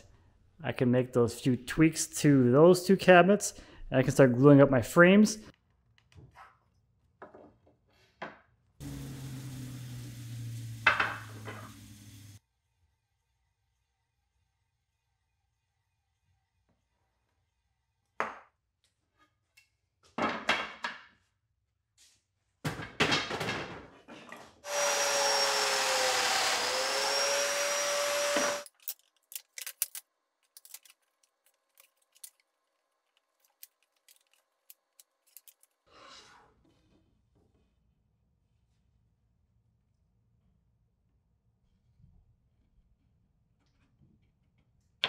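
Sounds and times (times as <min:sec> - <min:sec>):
power joiner motor whining: 0:08.8 - 0:11.4, 0:24.7 - 0:28.7
wooden parts knocking and clattering: 0:22.7 - 0:24.4.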